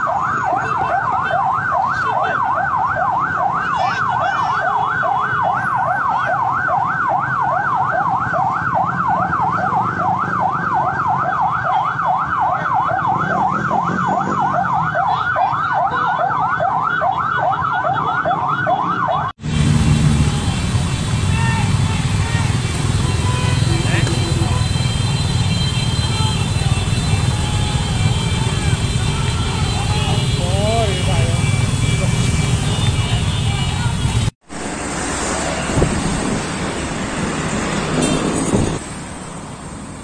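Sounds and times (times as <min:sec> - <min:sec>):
siren yelping: 0:00.0 - 0:19.4.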